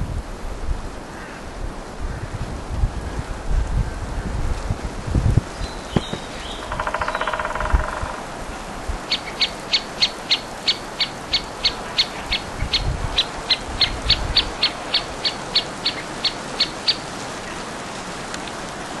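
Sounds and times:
woodpecker calling: 0:05.6 - 0:17.1.

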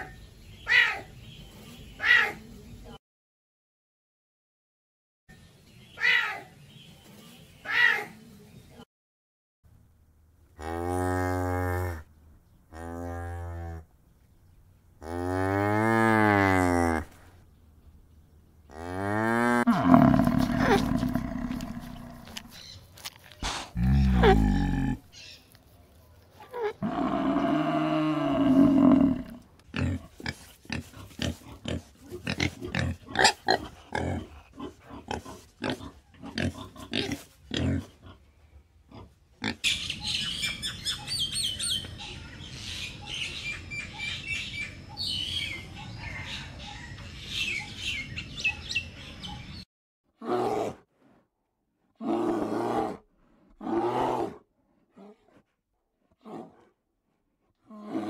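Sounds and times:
pig grunting: 0:18.7 - 0:22.6, 0:23.4 - 0:25.1, 0:26.5 - 0:38.2
pitched animal call: 0:18.7 - 0:22.6, 0:23.4 - 0:25.1.

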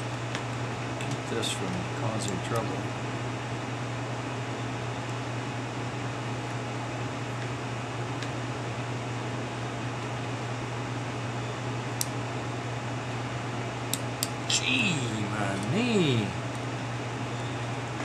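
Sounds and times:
steady low hum with hiss: 0:00.0 - 0:18.0
small sharp click: 0:12.0 - 0:12.2, 0:13.9 - 0:14.4.

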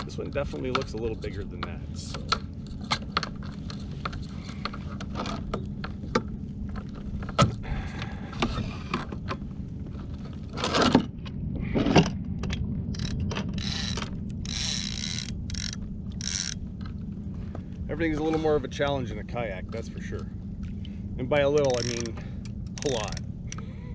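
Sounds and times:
steady low rumble: 0:00.0 - 0:23.9
fishing reel clicks and knocks: 0:12.9 - 0:16.6, 0:21.4 - 0:23.7.

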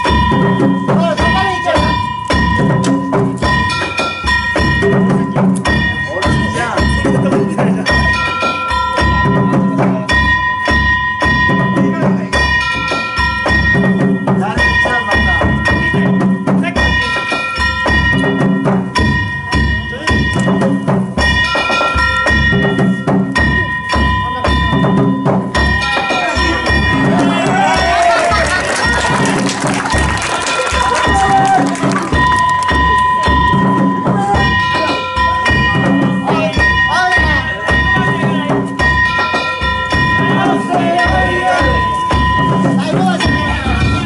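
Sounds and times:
drum strokes: 0:00.0 - 0:44.0.

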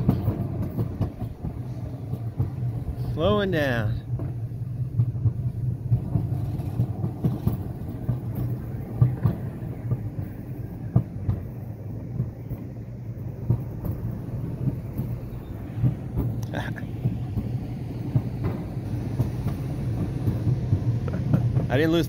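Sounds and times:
coaster cart rumbling on rails: 0:00.0 - 0:22.0.

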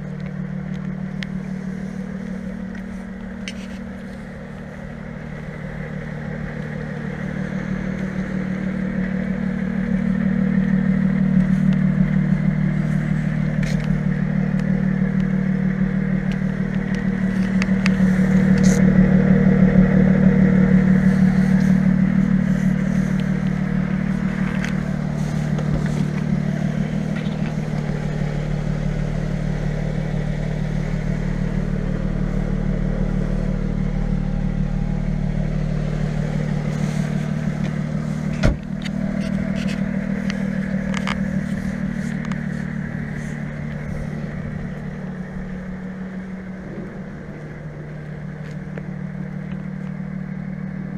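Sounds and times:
car engine idling: 0:00.0 - 0:50.9.

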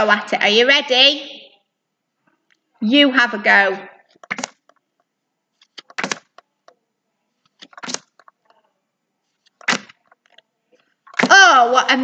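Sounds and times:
flashcards flicking: 0:04.2 - 0:04.8, 0:05.6 - 0:06.5, 0:07.4 - 0:08.5, 0:09.4 - 0:10.4.

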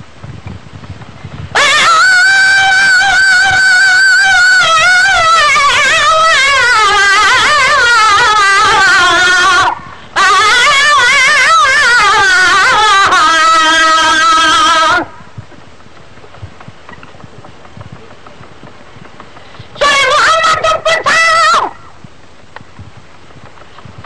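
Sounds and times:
person singing devotional song: 0:01.6 - 0:15.1.

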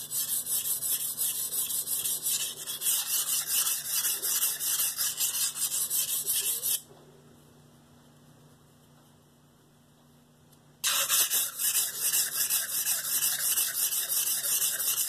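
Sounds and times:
knife blade scraping on whetstone: 0:00.0 - 0:06.8, 0:10.8 - 0:15.0.

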